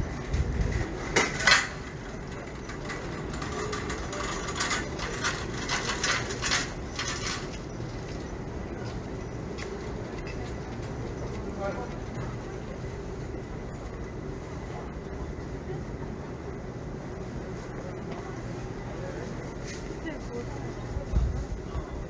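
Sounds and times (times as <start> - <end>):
dishes and metal utensils clattering: 1.1 - 7.7.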